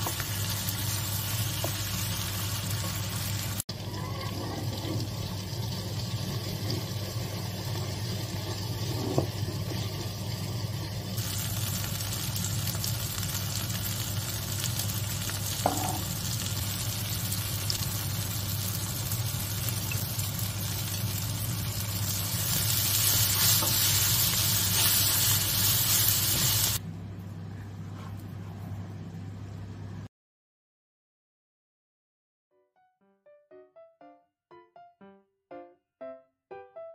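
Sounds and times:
vegetables sizzling in a frying pan: 0.0 - 26.8.

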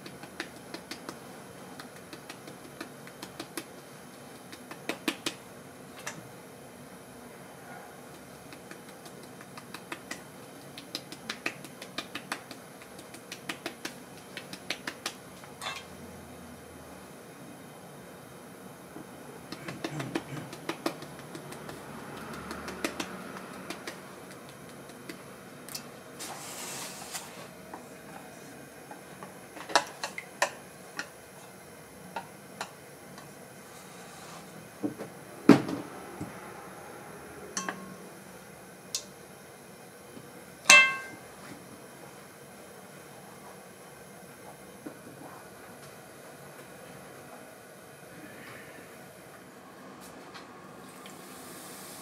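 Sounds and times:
utensils tapping metal trays: 15.6 - 15.9, 37.6 - 38.0, 40.7 - 41.3
brief hiss: 26.2 - 27.5
metal clank ringing: 37.6 - 38.0, 40.7 - 41.2.

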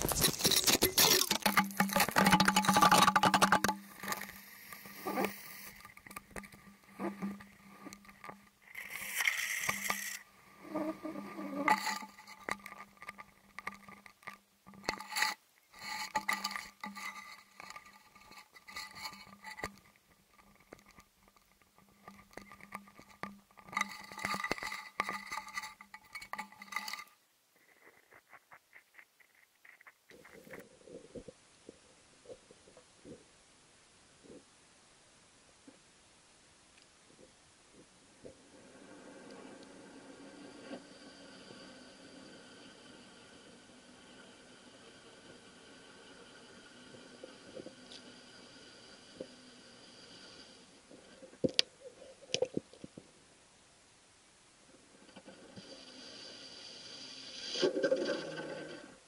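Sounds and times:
taps knocks and scrapes: 0.0 - 10.2, 11.5 - 30.6
faint steady hum: 0.0 - 59.0.

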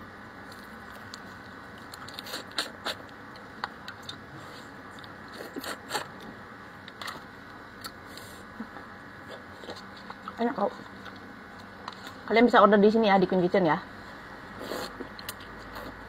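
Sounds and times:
chewing with wet mouth sounds: 7.8 - 12.1.

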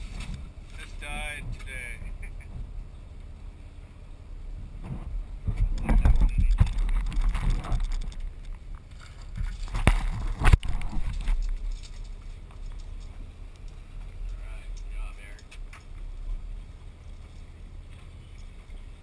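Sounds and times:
clatter and knocks: 4.8 - 13.2
camera handling rubbing and rumble: 4.8 - 13.8.

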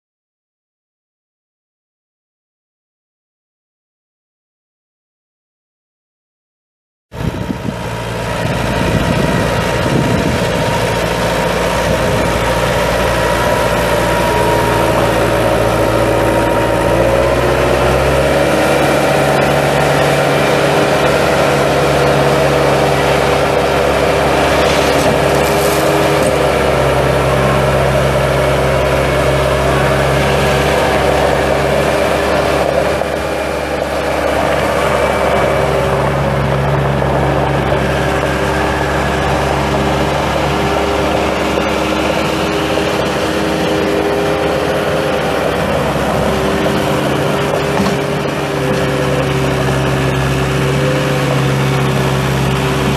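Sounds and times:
diesel engine running: 7.2 - 52.9.

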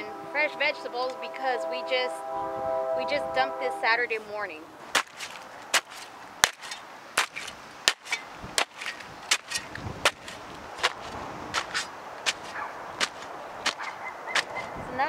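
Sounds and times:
hand tool chopping compost: 4.9 - 14.6.

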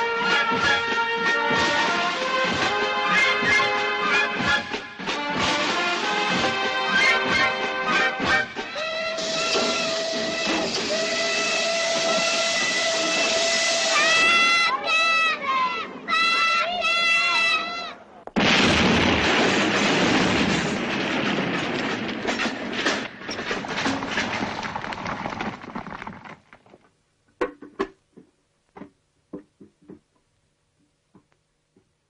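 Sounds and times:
loud crashing rush: 4.5 - 14.7, 18.4 - 26.1
high-pitched shout: 8.7 - 18.0.

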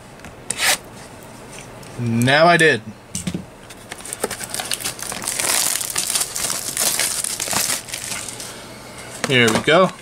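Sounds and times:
plastic shrink wrap crinkling: 4.0 - 8.6.

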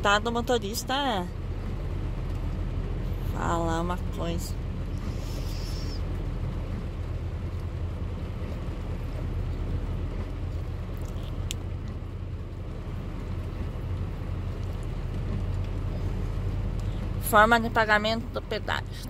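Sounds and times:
truck diesel engine droning: 0.0 - 19.0
tyres hissing on wet road: 4.4 - 9.1.

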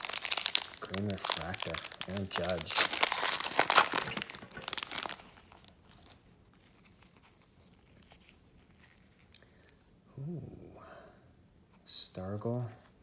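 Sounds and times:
foil wrapper crinkling: 0.0 - 9.4.

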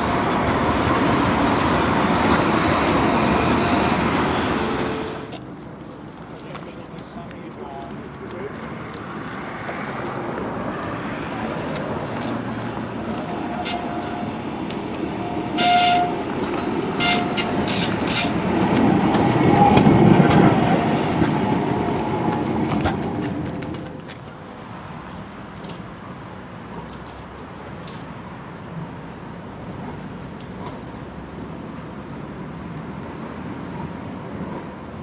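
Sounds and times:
tram passing on rails: 0.0 - 35.0
tram warning bell ringing: 12.2 - 23.7.

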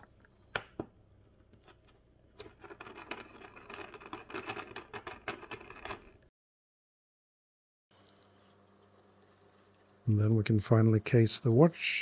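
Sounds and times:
small clicks and crackles: 8.0 - 10.6.

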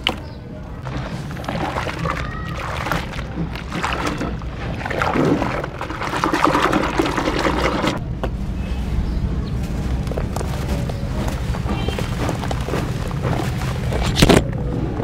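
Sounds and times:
wet sand squishing in soapy water: 0.8 - 8.0, 9.9 - 14.3.

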